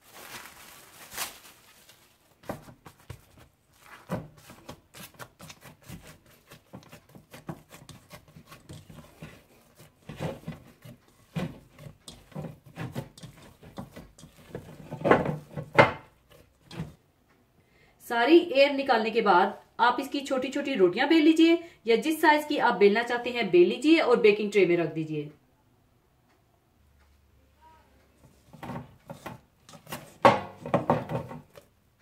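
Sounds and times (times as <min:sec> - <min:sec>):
hands kneading dough: 0:00.0 - 0:17.0
dough thumps: 0:02.4 - 0:17.0, 0:28.2 - 0:31.7.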